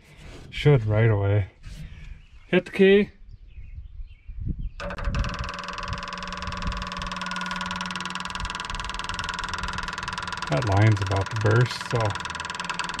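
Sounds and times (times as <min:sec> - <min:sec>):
electric fuel pump buzzing: 0:04.8 - 0:13.0.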